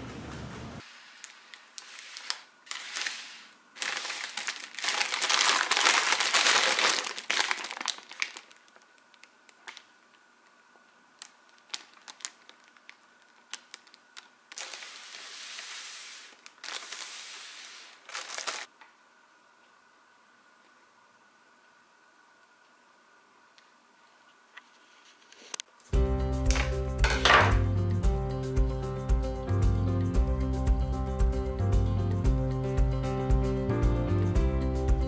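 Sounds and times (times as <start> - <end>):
paper bag crinkling: 1.2 - 9.9, 11.2 - 18.7.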